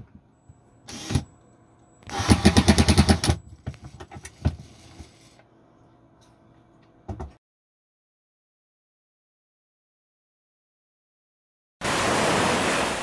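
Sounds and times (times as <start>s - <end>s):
cordless drill whirring: 0.9s - 1.4s, 2.0s - 5.1s.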